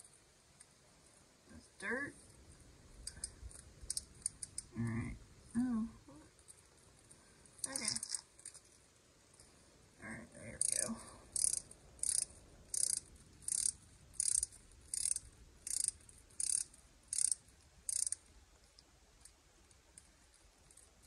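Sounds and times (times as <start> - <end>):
ratchet clicking: 3.0 - 4.7, 10.6 - 18.3.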